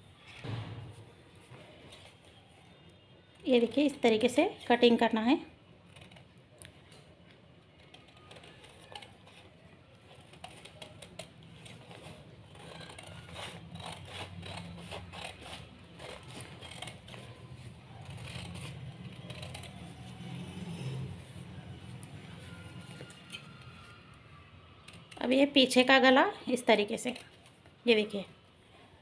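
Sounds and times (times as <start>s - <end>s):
scissors snipping paper: 7.7s - 21.0s.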